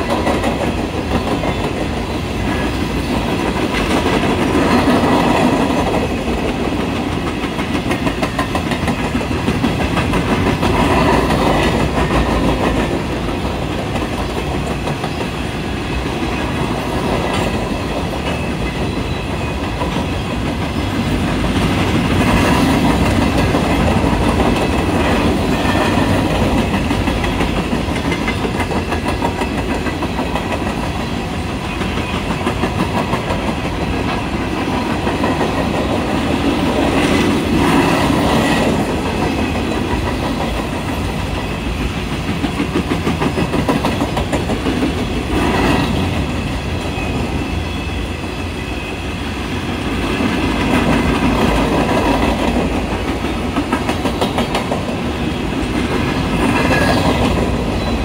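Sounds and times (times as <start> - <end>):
rolling rumble of train cars: 0.0 - 58.0
train wheels clattering over rails: 0.0 - 58.0.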